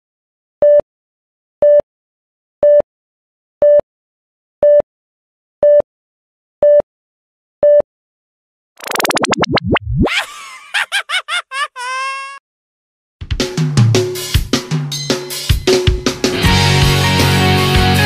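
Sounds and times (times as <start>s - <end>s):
short electronic countdown beeps: 4.6s - 4.8s, 5.6s - 5.9s, 6.6s - 6.9s, 7.6s - 7.9s.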